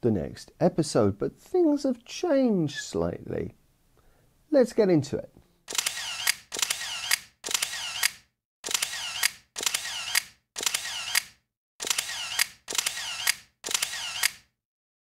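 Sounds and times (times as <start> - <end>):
camera shutter click and film whirr: 5.7 - 14.5.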